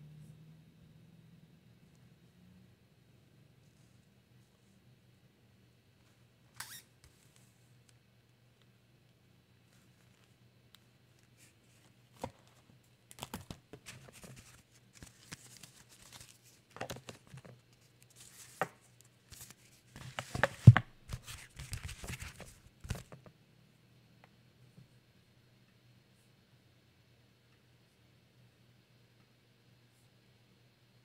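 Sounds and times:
faint low hum: 0:00.0 - 0:31.0
paper rustling: 0:11.2 - 0:23.2.

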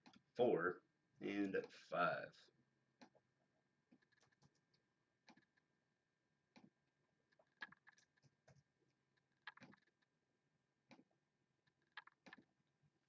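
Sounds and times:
mouse and keyboard clicks: 0:03.9 - 0:05.6, 0:07.3 - 0:10.1, 0:11.7 - 0:12.5.

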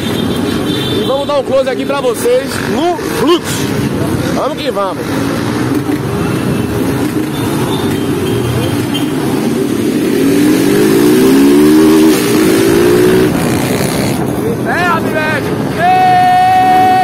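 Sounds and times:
motorcycle engine revving up: 0:02.6 - 0:14.4.

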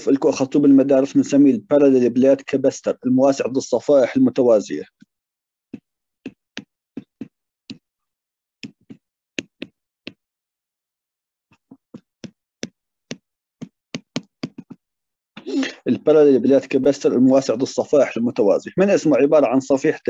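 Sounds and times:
stylus tapping on tablet screen: 0:05.7 - 0:07.9, 0:08.6 - 0:10.2, 0:11.5 - 0:14.8.

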